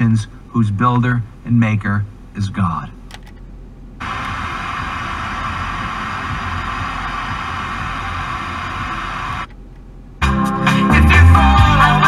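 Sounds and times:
low steady hum: 0.0 - 10.2
radio static hiss: 4.0 - 9.5.

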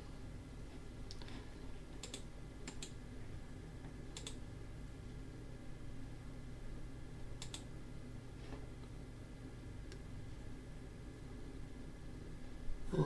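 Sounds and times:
faint low hum: 0.0 - 13.0
keyboard and mouse clicks: 2.0 - 3.0, 4.2 - 4.4, 7.4 - 7.7.

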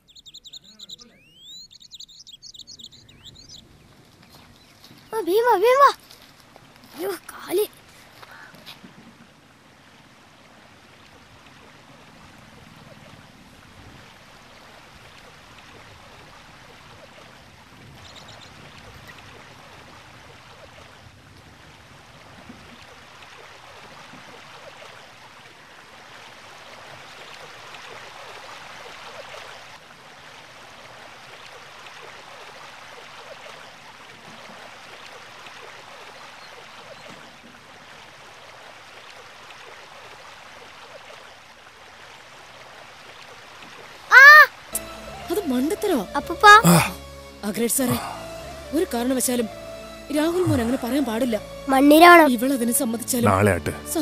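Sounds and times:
high chirp: 0.0 - 3.6.

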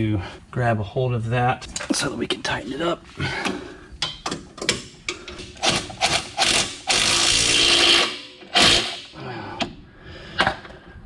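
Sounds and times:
impact driver whirring: 5.5 - 9.1.

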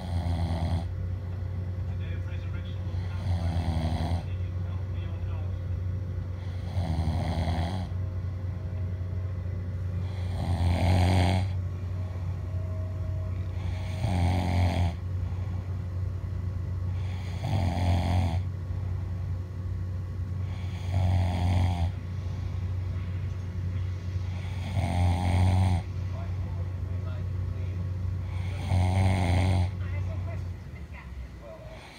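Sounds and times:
person snoring: 0.0 - 0.9, 2.9 - 4.3, 6.4 - 7.9, 10.0 - 11.6, 13.4 - 15.0, 16.9 - 18.5, 20.4 - 22.0, 24.3 - 25.9, 28.2 - 29.8
steady low hum: 0.0 - 31.9.

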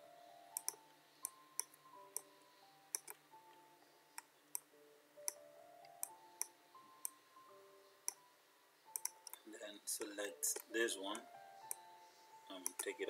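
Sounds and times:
soft background music: 0.0 - 13.0
computer mouse clicks: 0.5 - 2.3, 2.9 - 3.2, 8.9 - 9.4, 12.6 - 13.0.

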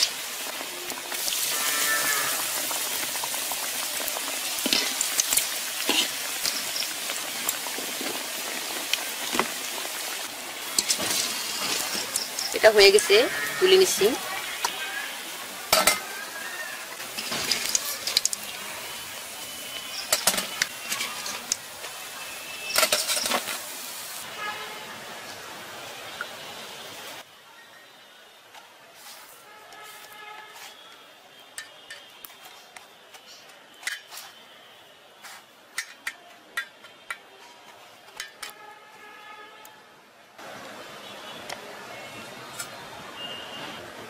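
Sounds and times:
hot oil sizzling: 0.0 - 27.3.

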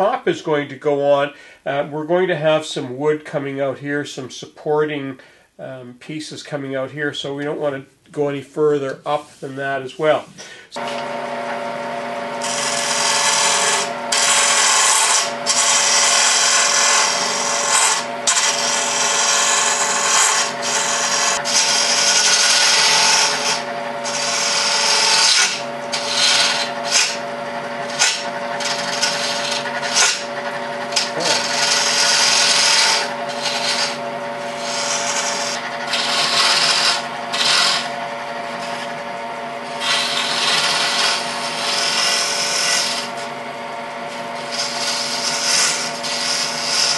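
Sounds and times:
lathe motor hum: 10.7 - 46.9.

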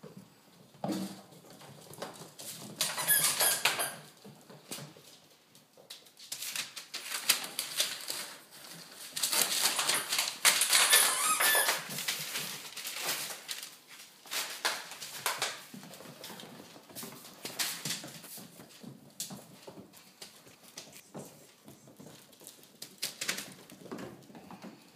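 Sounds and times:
puppies squeaking: 2.9 - 4.1, 10.8 - 11.8.

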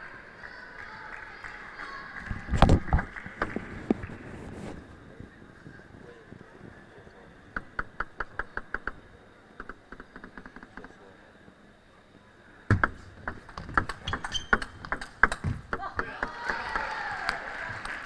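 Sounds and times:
table tennis ball bouncing: 12.7 - 16.9.

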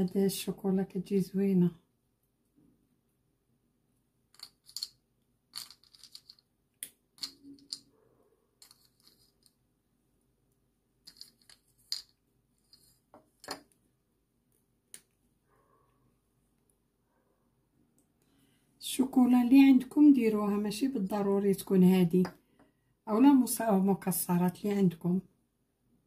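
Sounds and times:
chocolate chips clicking and rustling: 4.3 - 7.9, 8.6 - 9.6, 11.0 - 13.6.

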